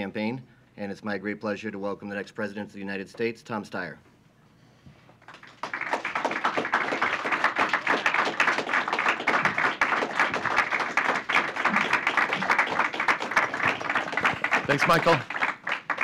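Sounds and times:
audience applauding: 5.2 - 16.0.

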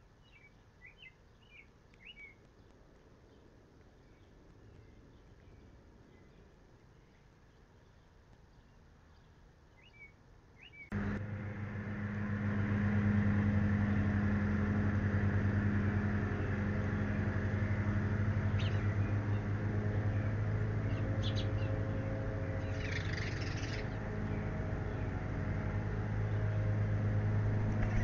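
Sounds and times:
low mechanical hum: 0.0 - 28.0
bird chirps: 0.2 - 2.4, 4.0 - 11.2, 17.4 - 25.2.

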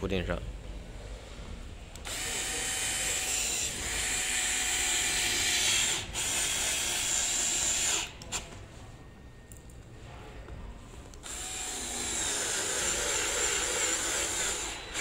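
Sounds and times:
electric screwdriver running: 2.0 - 8.1, 11.2 - 15.0.

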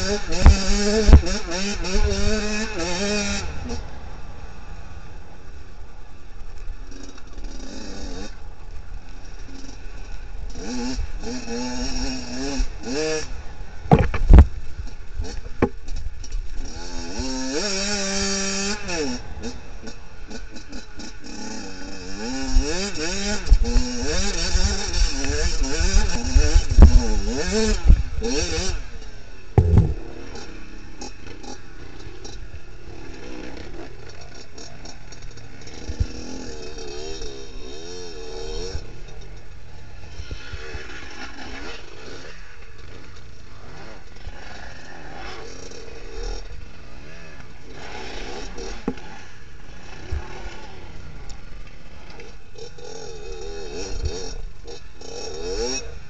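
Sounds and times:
motorcycle engine revving: 0.0 - 4.9, 6.8 - 8.5, 9.1 - 56.0
thud: 13.9 - 14.5, 29.6 - 30.0.

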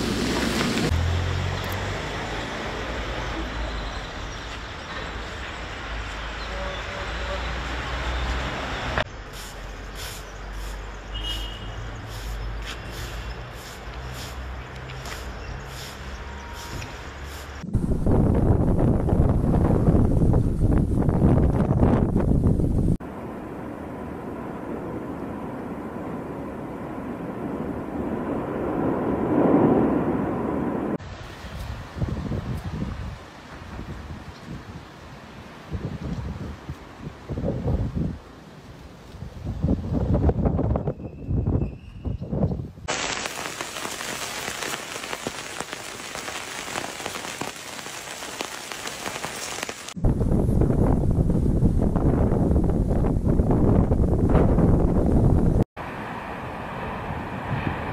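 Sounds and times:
wind buffeting microphone: 17.6 - 23.0, 26.1 - 34.9, 35.6 - 38.3, 39.2 - 55.7
lava fountain rushing: 42.9 - 50.0
patter of falling drops: 42.9 - 50.0.

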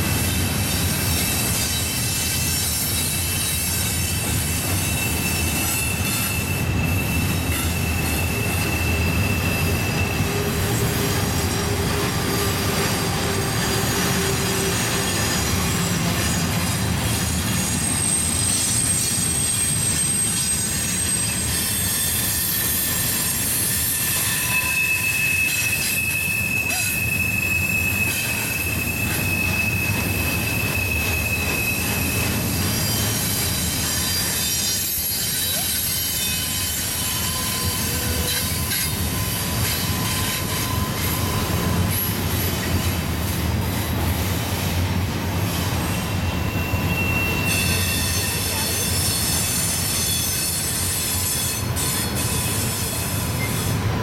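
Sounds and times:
steel wheels rumbling on rail: 0.0 - 54.0
high wheel-flange squeal: 0.2 - 43.8, 45.5 - 54.0
lower squealing tone: 4.2 - 16.4, 17.5 - 42.7, 46.0 - 50.6.

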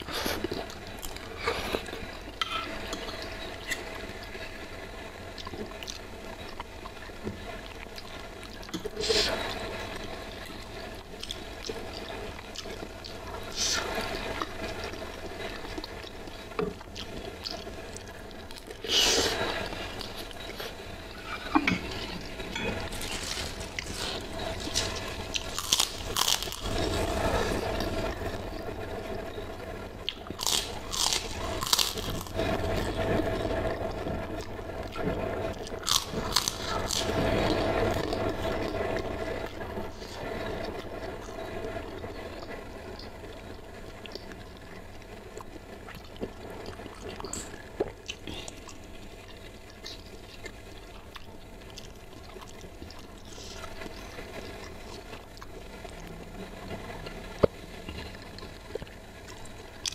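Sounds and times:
wet chewing and mouth sounds: 5.3 - 28.6, 30.0 - 33.0, 33.8 - 39.1, 43.9 - 56.2, 57.0 - 59.9.

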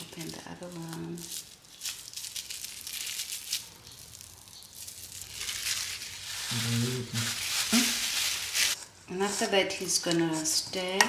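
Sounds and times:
plastic wrapping crinkling and tearing: 0.0 - 8.8.

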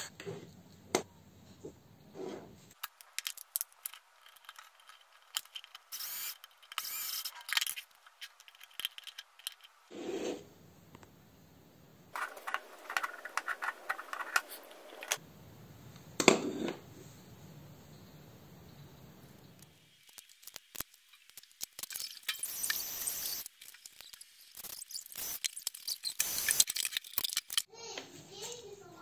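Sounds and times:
plastic power strip rattling: 12.2 - 15.2.

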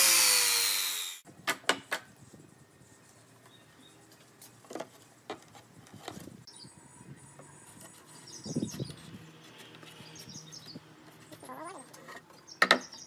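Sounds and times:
faint birds chirping: 2.6 - 4.8, 5.9 - 13.0.

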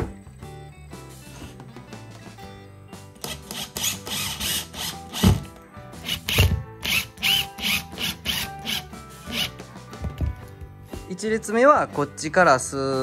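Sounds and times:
background music: 0.0 - 13.0
impact driver driving screws: 3.2 - 9.5.

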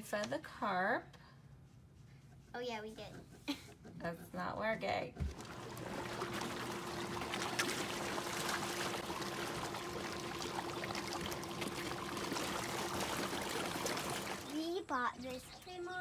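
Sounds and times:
fish splashing at water surface: 5.3 - 14.6.

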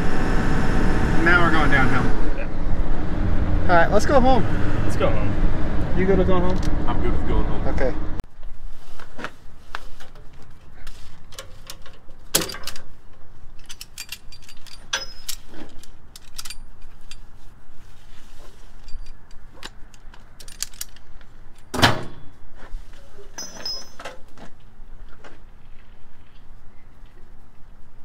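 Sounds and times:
metal hardware clinking and rattling: 11.3 - 17.3, 18.7 - 22.2, 23.4 - 24.3.

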